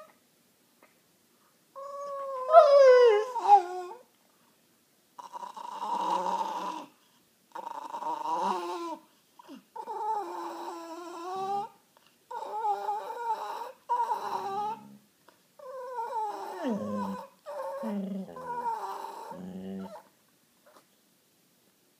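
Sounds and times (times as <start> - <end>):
dogs howling and whining: 1.8 - 4.1, 9.8 - 15.0, 15.6 - 20.1.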